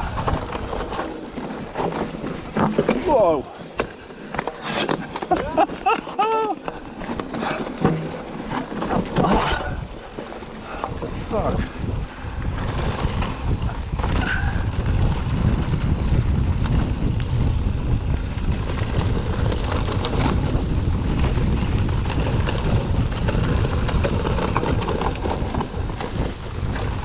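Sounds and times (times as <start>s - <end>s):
wind buffeting microphone: 0.0s - 4.0s, 5.0s - 27.0s
bike rattles and knocks: 0.0s - 27.0s
tyre roar: 8.9s - 9.9s.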